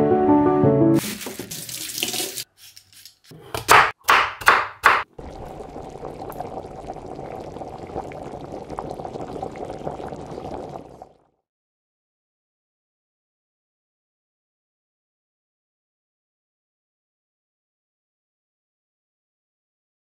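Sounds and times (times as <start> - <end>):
plastic bag rustling: 1.0 - 2.5
soup bubbling and popping: 3.7 - 11.4.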